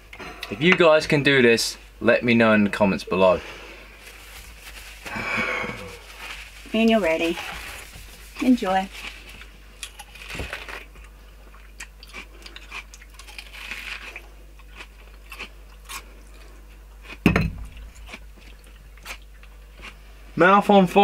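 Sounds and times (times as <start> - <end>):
man chewing crunchy onion: 8.2 - 20.1.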